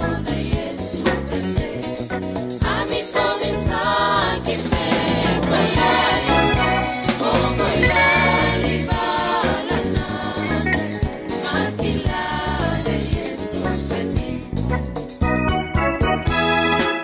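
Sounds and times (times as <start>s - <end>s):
choir singing gospel music: 0.0s - 17.0s
rhythmic bass line: 0.0s - 17.0s.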